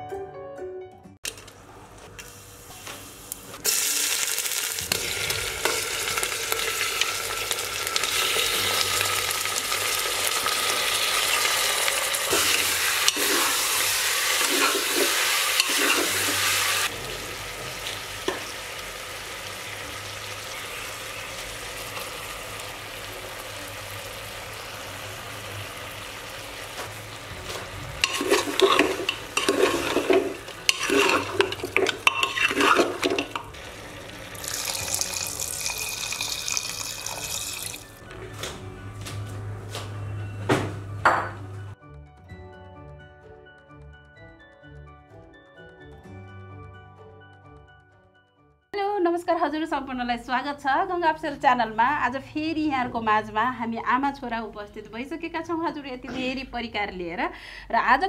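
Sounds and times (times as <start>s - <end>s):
onions sizzling in oil: 2.3s - 38.0s
metal spoon scraping pot: 12.3s - 16.8s, 28.0s - 33.6s.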